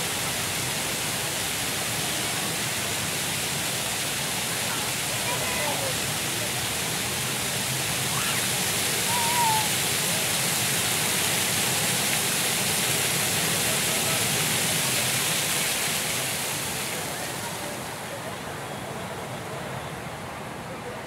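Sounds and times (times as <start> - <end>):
fountain water splashing: 0.0 - 21.0.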